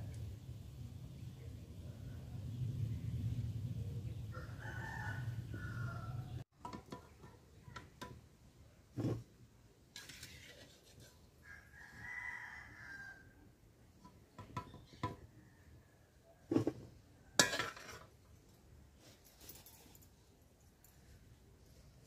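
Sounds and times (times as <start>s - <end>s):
rooster crowing: 4.3s - 6.4s, 11.4s - 13.4s
metal spoon scraping pan: 9.9s - 11.3s, 17.4s - 18.1s.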